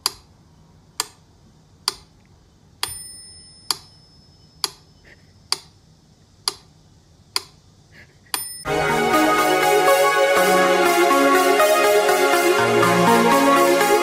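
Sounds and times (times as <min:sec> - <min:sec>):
sharp steady ticking: 0:01.8 - 0:02.1, 0:06.4 - 0:06.7
bell-like ding: 0:02.9 - 0:04.5.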